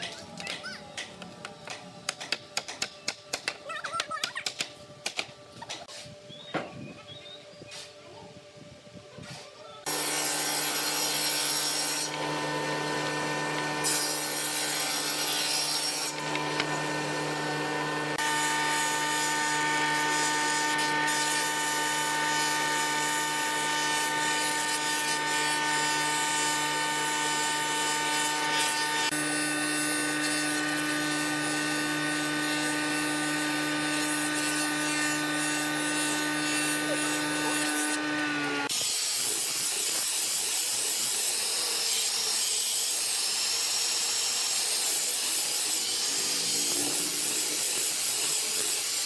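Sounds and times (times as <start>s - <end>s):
motor hum with high whine: 0.0s - 38.7s
thickness planer planing wood: 9.9s - 38.8s
saw ripping a board: 9.9s - 49.0s.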